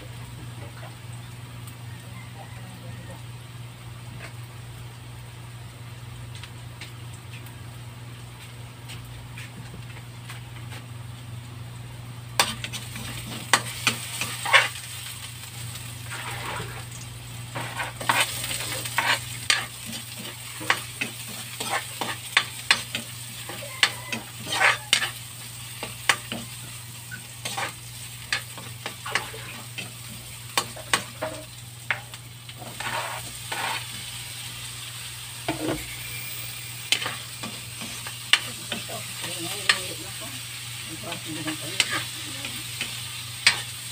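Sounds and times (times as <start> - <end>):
garlic and onion frying in oil: 0.0 - 43.9
metal spatula scraping a pan: 12.4 - 14.8, 16.0 - 16.8, 17.6 - 25.2, 27.2 - 29.9, 30.6 - 34.0, 35.5 - 40.0, 41.3 - 43.9.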